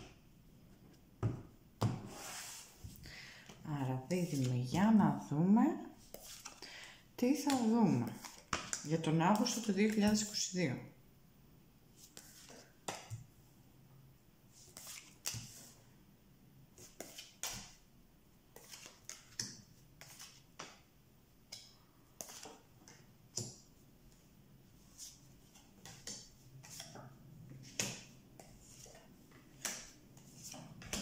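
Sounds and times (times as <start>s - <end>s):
cards tapping and sliding on table: 27.6s - 31.0s.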